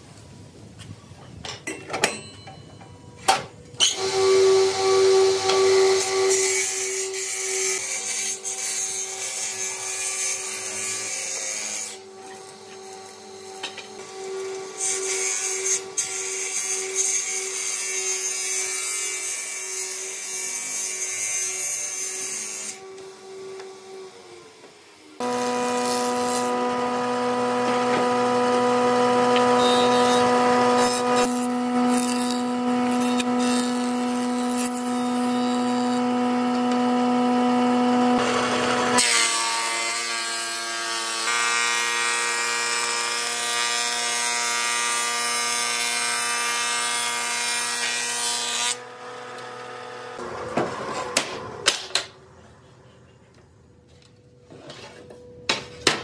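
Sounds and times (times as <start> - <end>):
jointer whining and planing: 3.2 - 52.1
planing machine running: 25.2 - 39.6, 48.2 - 51.6.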